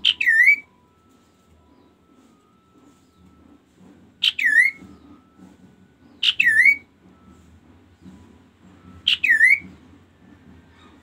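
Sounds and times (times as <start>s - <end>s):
bird whistled calls: 0.0s - 0.8s, 4.2s - 5.4s, 6.1s - 6.9s, 9.0s - 9.7s.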